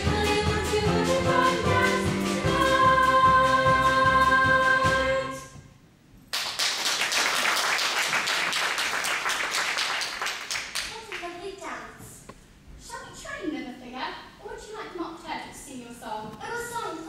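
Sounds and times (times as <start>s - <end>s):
audience applause: 6.4s - 11.0s.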